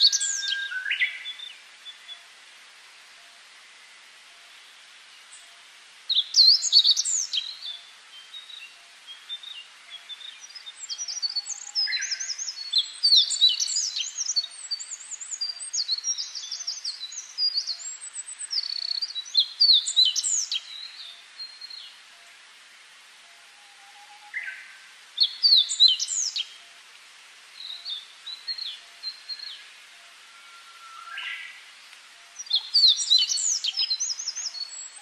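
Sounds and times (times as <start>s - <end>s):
songbirds chirping and trilling: 0.0s - 2.5s, 3.1s - 35.0s.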